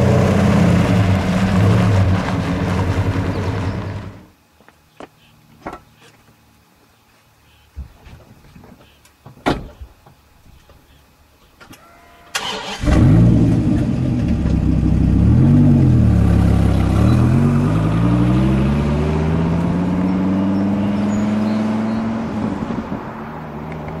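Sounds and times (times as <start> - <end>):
car accelerating away: 0.0 - 4.2, 12.4 - 24.0
car engine starting: 0.0 - 4.3, 12.4 - 23.0.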